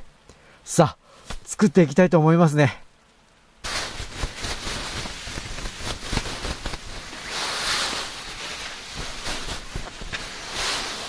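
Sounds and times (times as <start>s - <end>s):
snow pelting tent fabric: 3.6s - 11.0s.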